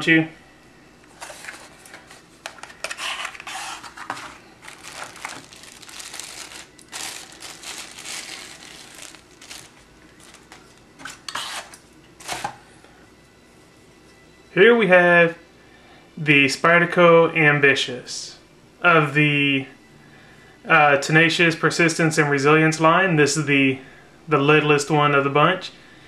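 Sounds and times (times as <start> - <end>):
cardboard rustling and crinkling: 1.1 - 12.6.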